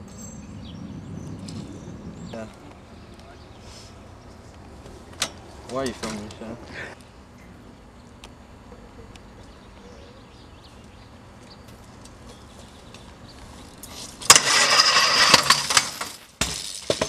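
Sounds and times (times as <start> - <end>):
bike rushing noise: 0.0 - 7.0, 11.8 - 17.0.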